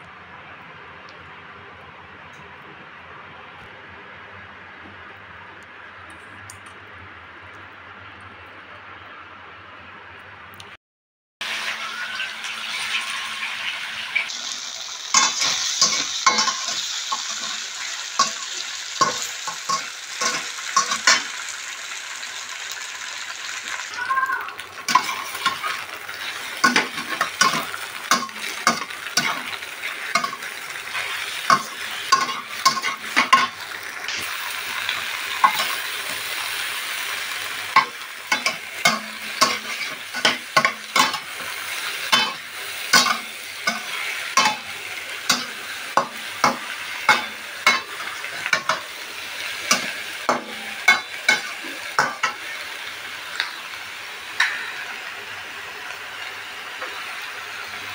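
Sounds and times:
food sizzling in a wok: 11.4 - 57.9
metal spatula clacking on a pan: 15.1 - 17.5, 19.0 - 21.3, 24.9 - 25.8, 26.6 - 30.5, 31.5 - 33.6, 35.4 - 35.8, 37.8 - 41.3, 42.1 - 44.7, 45.3 - 48.8, 49.7 - 52.4, 54.4 - 54.8.

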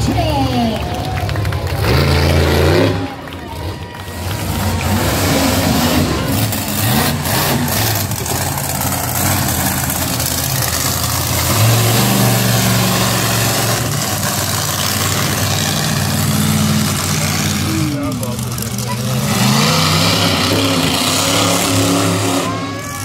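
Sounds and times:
monster truck engine revving: 0.0 - 23.0.

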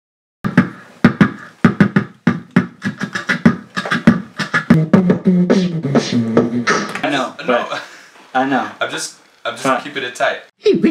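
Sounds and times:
beatboxing into microphone: 0.4 - 7.3.

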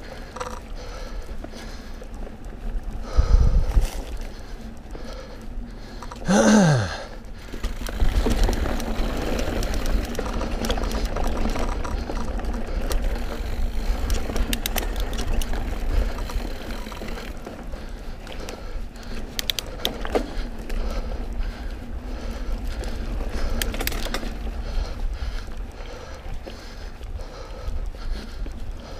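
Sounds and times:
bike rattles and clicks: 0.0 - 28.9
bike tyre rumble: 0.0 - 28.9
wind noise: 2.8 - 4.4, 7.7 - 17.2
rider groaning: 6.1 - 7.2.

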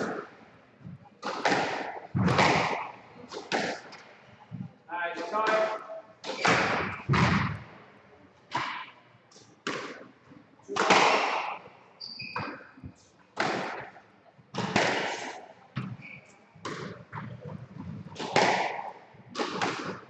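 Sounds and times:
squash ball knocks: 1.2 - 3.9, 5.4 - 7.7, 18.1 - 20.0
shoe squeak on wooden floor: 12.0 - 12.9, 15.8 - 16.5.

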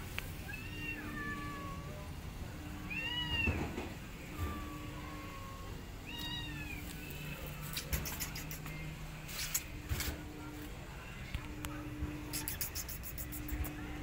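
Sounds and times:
cat meowing: 0.4 - 2.1, 2.8 - 3.6, 4.3 - 8.8.

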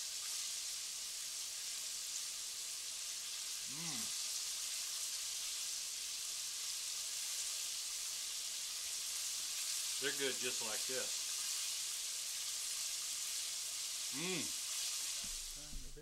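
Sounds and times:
deep-frying oil sizzling: 0.0 - 15.9
person humming mmm: 3.7 - 4.2, 14.2 - 14.5.

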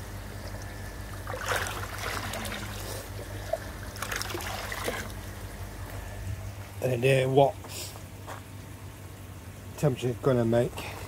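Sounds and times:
water trickling and splashing: 0.0 - 5.5
steady low hum: 0.0 - 11.0.

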